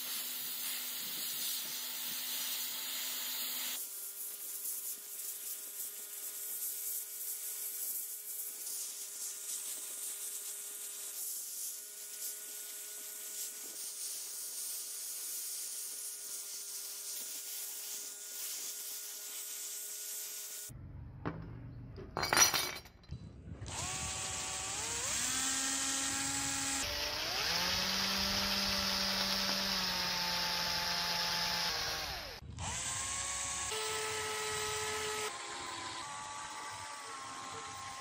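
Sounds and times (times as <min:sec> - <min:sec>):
sanding on metal: 0:00.0 - 0:20.7
rotary tool motor whine: 0:23.6 - 0:38.0.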